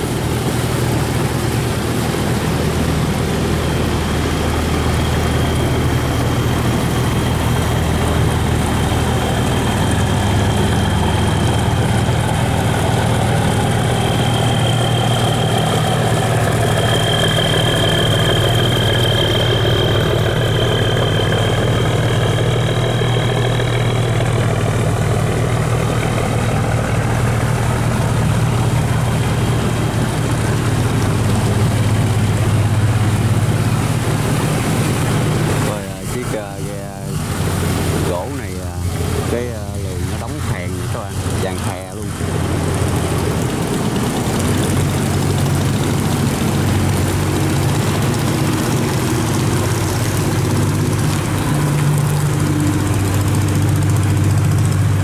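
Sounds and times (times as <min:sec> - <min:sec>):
boat diesel engine humming: 0:00.0 - 0:55.0
thin high whine: 0:01.8 - 0:43.6.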